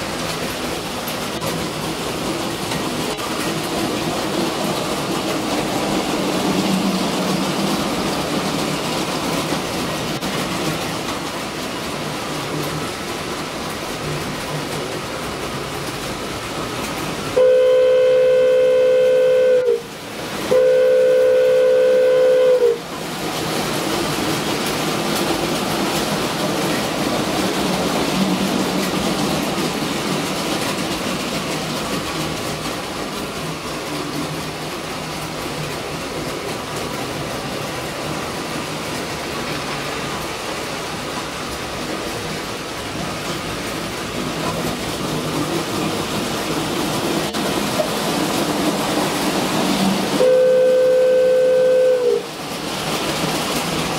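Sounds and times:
model train rumbling on track: 0:00.0 - 0:53.9
model train whistle blasts: 0:17.4 - 0:19.9, 0:20.5 - 0:22.8, 0:50.2 - 0:52.3.

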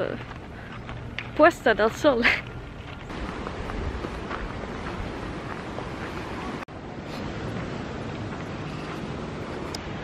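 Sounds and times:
wind on microphone: 0:03.0 - 0:10.0.

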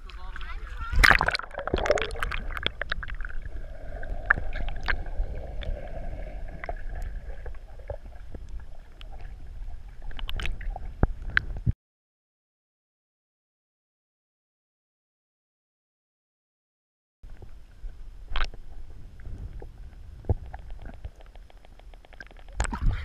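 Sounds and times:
muffled underwater rumble: 0:00.0 - 0:11.7, 0:17.3 - 0:23.0
underwater clicks and pops: 0:01.0 - 0:03.4, 0:04.2 - 0:05.0, 0:10.1 - 0:11.7, 0:18.3 - 0:18.6, 0:19.5 - 0:22.9.

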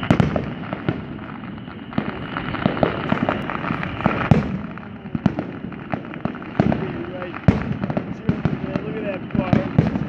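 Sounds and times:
fireworks bangs and crackles: 0:00.0 - 0:10.0.

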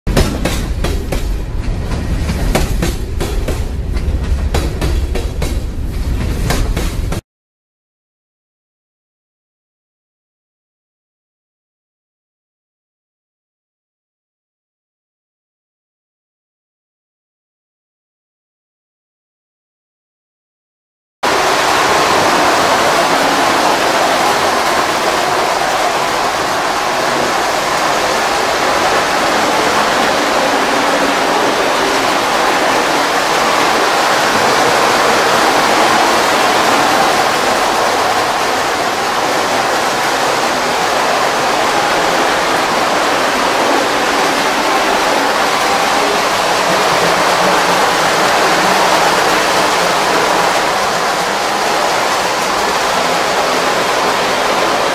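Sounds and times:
model trains rumbling on track: 0:21.2 - 0:54.9.

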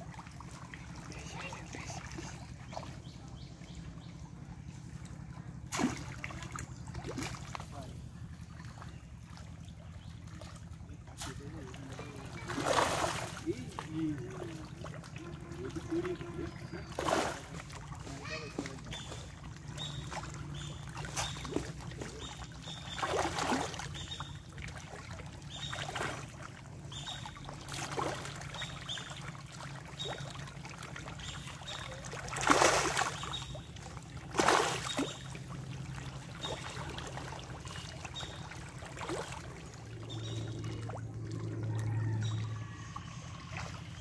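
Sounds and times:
small fish splashing: 0:05.6 - 0:44.0.

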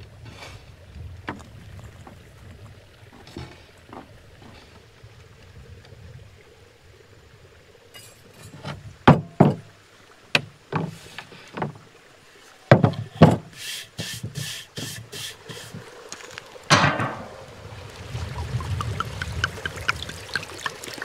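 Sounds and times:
utensil scraping strokes: 0:13.5 - 0:15.8
cookware knocks and thuds: 0:16.7 - 0:17.3.

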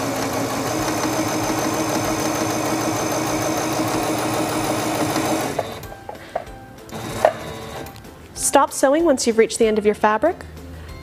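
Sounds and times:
sewing machine running: 0:00.0 - 0:05.9, 0:06.9 - 0:07.9.

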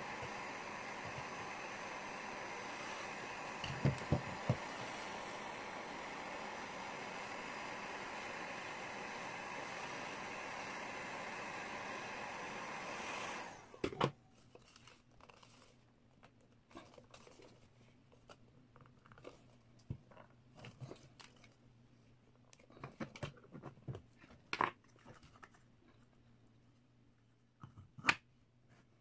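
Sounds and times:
heat gun blowing: 0:00.0 - 0:13.8.

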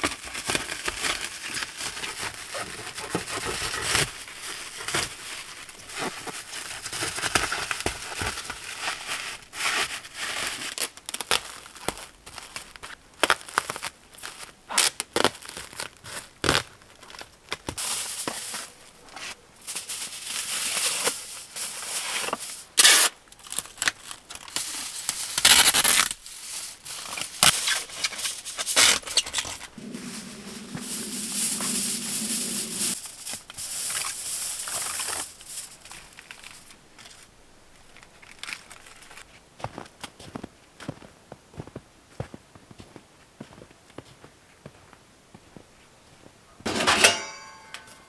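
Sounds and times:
plastic sheet crinkling: 0:00.0 - 0:17.2, 0:23.4 - 0:39.2.

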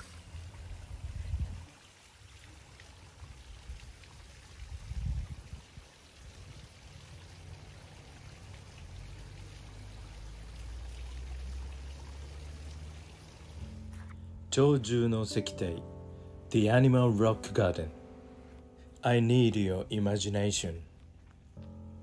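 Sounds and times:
water trickling into pond: 0:00.0 - 0:16.6.

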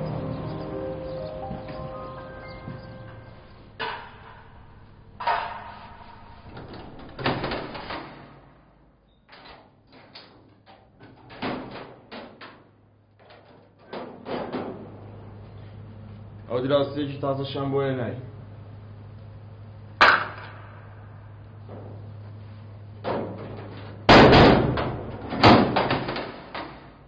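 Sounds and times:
sharp knocks and clatters: 0:02.6 - 0:08.4.

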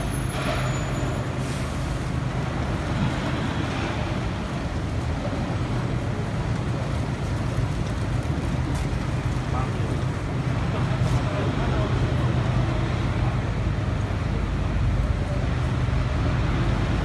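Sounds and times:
heavy vehicle engine rumble: 0:00.0 - 0:17.0
passing vehicles: 0:00.0 - 0:17.0.

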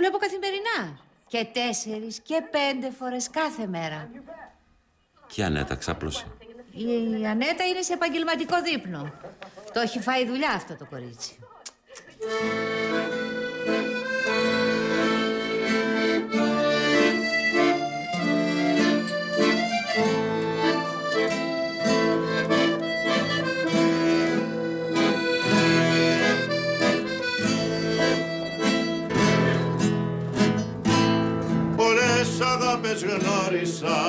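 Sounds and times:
accordion melody: 0:12.2 - 0:34.0
acoustic guitar strumming: 0:12.2 - 0:34.0.

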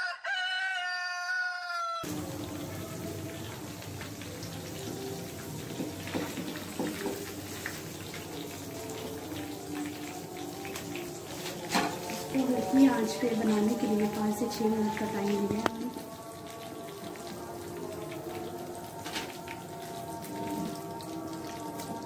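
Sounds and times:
rooster crowing: 0:00.0 - 0:02.2
food sizzling in frying oil: 0:02.0 - 0:22.0.

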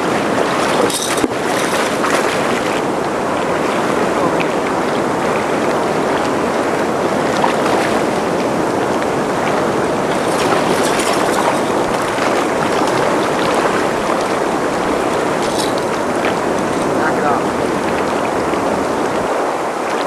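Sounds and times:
river water rushing: 0:00.0 - 0:20.0
water splashes: 0:00.0 - 0:20.0.

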